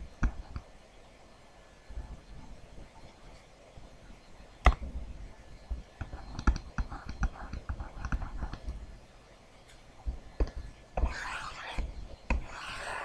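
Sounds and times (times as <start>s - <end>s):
stylus clicking on tablet screen: 6.0s - 8.8s.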